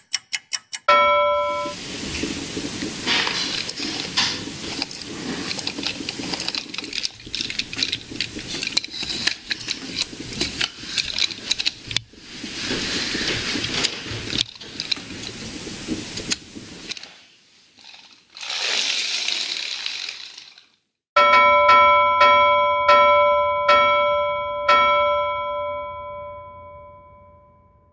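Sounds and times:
bell-like chime notes: 0:00.9 - 0:01.8, 0:21.2 - 0:27.9
wooden gears whirring and clicking: 0:02.2 - 0:20.9.

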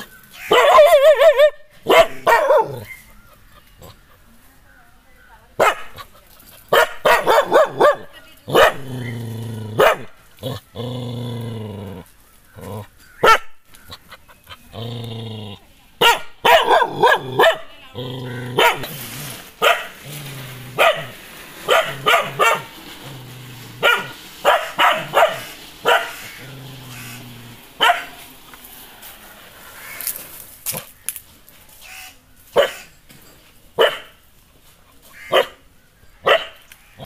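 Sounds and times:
dog barking: 0:00.5 - 0:03.0, 0:05.6 - 0:06.0, 0:06.7 - 0:08.9, 0:09.8 - 0:10.1, 0:13.2 - 0:13.5, 0:16.0 - 0:17.7, 0:18.6 - 0:18.9, 0:19.6 - 0:19.9, 0:20.8 - 0:22.8, 0:23.8 - 0:27.1, 0:27.8 - 0:28.2, 0:32.6 - 0:32.9, 0:33.8 - 0:34.2, 0:35.2 - 0:35.6, 0:36.2 - 0:36.6
dog growling: 0:08.5 - 0:13.0, 0:13.9 - 0:15.7, 0:16.7 - 0:19.2, 0:20.0 - 0:28.6.

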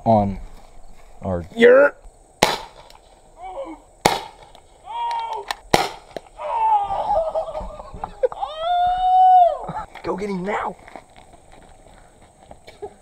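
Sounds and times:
paintball gun shots: 0:02.4 - 0:03.1, 0:04.0 - 0:04.6, 0:05.4 - 0:06.3
people shouting and yelping: 0:03.4 - 0:03.9, 0:04.8 - 0:05.6, 0:06.2 - 0:09.9.

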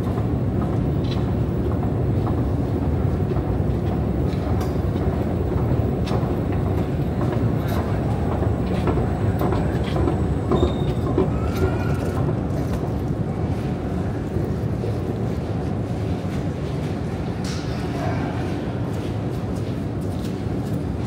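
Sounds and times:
escalator mechanical rumble: 0:00.0 - 0:13.2.

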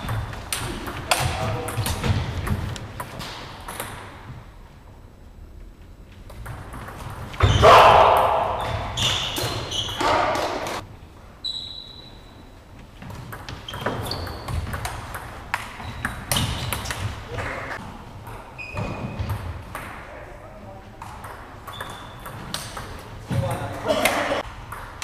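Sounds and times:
table tennis ball bouncing: 0:13.0 - 0:17.6, 0:21.0 - 0:23.8, 0:24.6 - 0:25.0.

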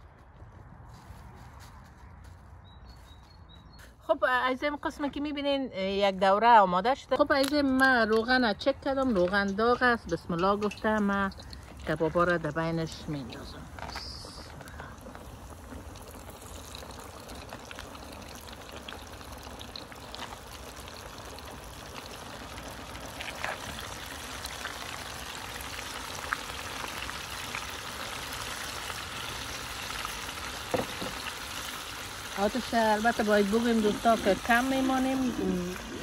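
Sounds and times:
meat deep-frying in hot oil: 0:10.6 - 0:36.0.

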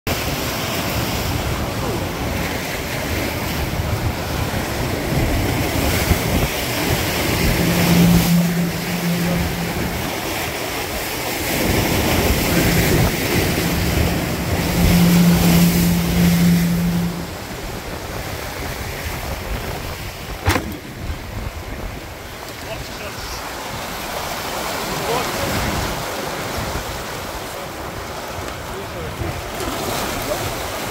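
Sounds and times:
rushing water: 0:00.1 - 0:30.9
wind: 0:00.1 - 0:30.9
steady low hum: 0:05.8 - 0:17.9
sharp knock: 0:20.4 - 0:21.0.

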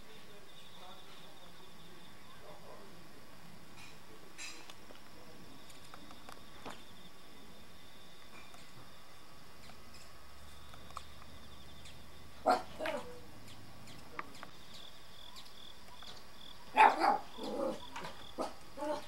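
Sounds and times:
faint background noise: 0:00.0 - 0:19.0
dog barking: 0:12.4 - 0:13.2, 0:16.7 - 0:17.8, 0:18.4 - 0:19.0.

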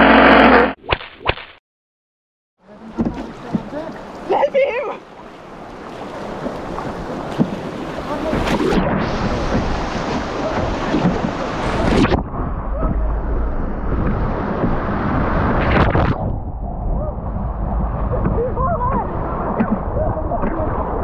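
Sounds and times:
rushing white water: 0:02.7 - 0:16.2
waves splashing over boat: 0:02.7 - 0:16.4, 0:17.0 - 0:21.0
wind rumbling on microphone: 0:05.4 - 0:21.0.

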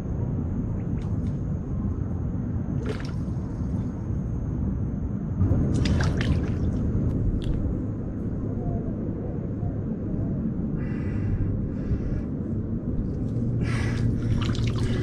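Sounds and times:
steady low rumble: 0:00.0 - 0:15.0
water splashing: 0:02.8 - 0:03.2, 0:05.7 - 0:06.8, 0:14.1 - 0:15.0.

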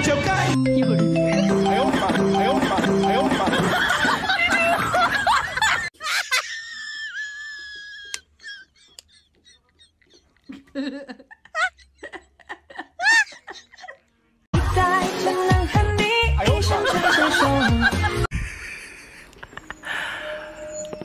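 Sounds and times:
music: 0:00.0 - 0:03.6, 0:14.5 - 0:18.3
high-pitched giggling and squeals: 0:01.7 - 0:14.2.

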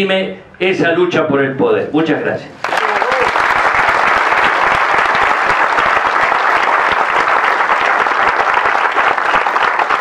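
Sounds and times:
audience applause: 0:02.6 - 0:10.0.

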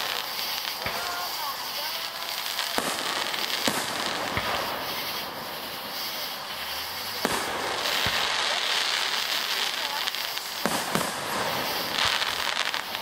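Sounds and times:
fireworks bursting with sharp bangs: 0:00.0 - 0:13.0
steady hiss: 0:00.0 - 0:13.0.

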